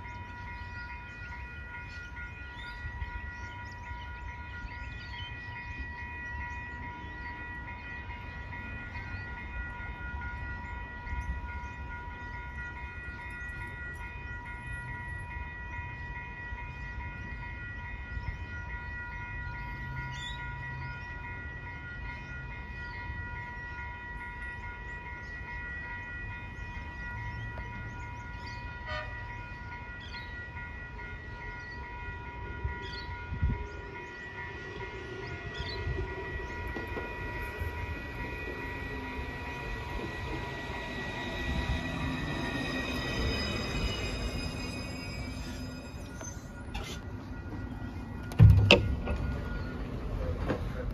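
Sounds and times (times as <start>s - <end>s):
level crossing alarm ringing: 0.0s - 50.9s
tram running rumble: 0.0s - 50.9s
knocks: 48.3s - 49.2s.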